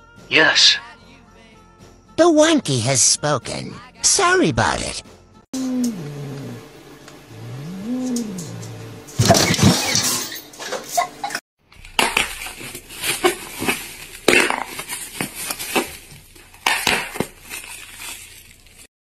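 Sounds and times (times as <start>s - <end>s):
plastic bag crinkling: 11.8s - 18.9s.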